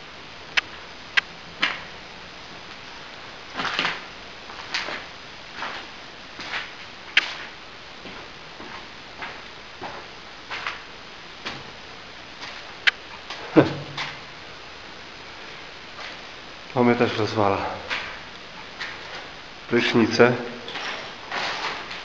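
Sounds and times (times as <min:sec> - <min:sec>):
footsteps on hard floor: 0:03.5 - 0:10.8.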